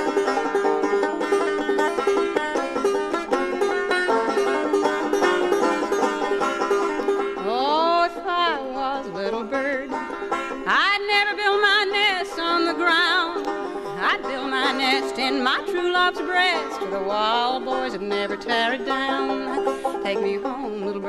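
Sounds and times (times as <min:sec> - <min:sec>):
banjo playing: 0:00.0 - 0:21.0
sliding held melody notes: 0:00.0 - 0:21.0.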